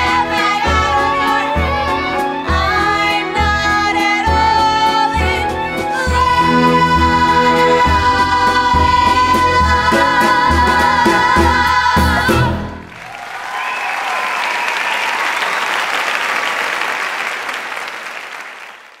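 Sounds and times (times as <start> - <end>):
women singing with band: 0.0 - 12.8
audience applause: 12.8 - 19.0.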